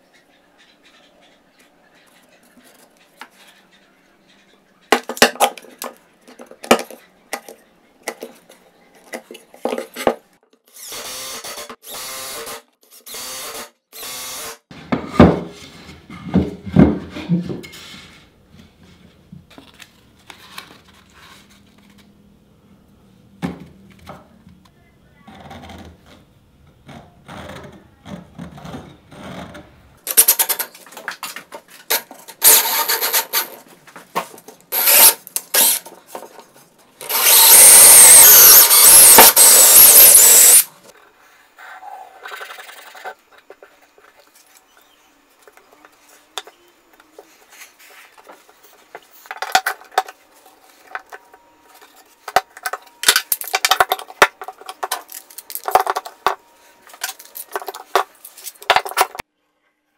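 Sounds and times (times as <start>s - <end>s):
power tool running: 34.7s - 35.8s, 37.0s - 40.7s.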